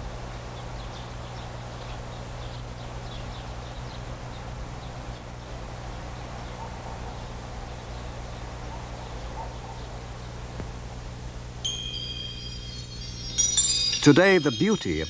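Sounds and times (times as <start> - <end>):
steady low hum: 0.0 - 15.0
faint bird chirps: 0.4 - 10.5, 11.3 - 15.0
bell-like chime ringing: 11.6 - 15.0.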